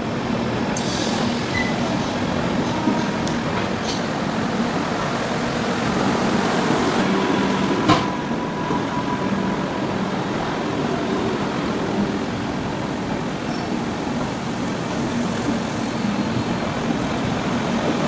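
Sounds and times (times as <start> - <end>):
train rumbling past: 0.0 - 18.0.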